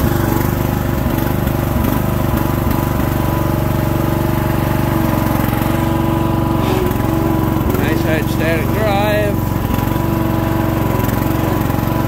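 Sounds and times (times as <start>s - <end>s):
mower engine running steadily: 0.0s - 12.0s.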